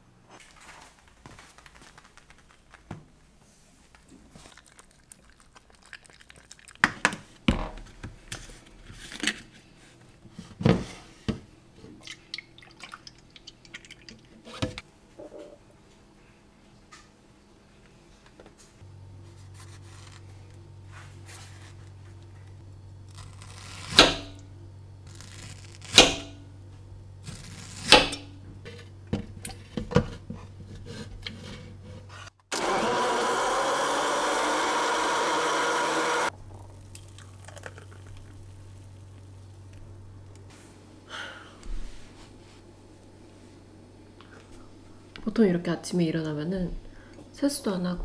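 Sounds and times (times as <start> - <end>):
blender running: 32.5 - 36.3.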